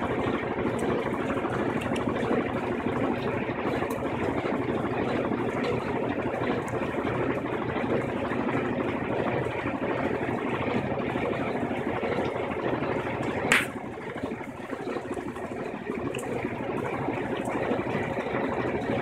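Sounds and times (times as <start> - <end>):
washing machine spinning: 0.0 - 19.0
sharp click: 13.5 - 13.8.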